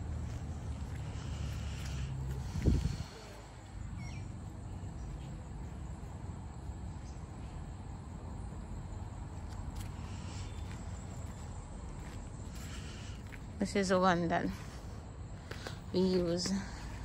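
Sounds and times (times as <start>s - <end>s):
low outdoor rumble: 0.0s - 17.0s
bird chirp: 3.8s - 5.5s.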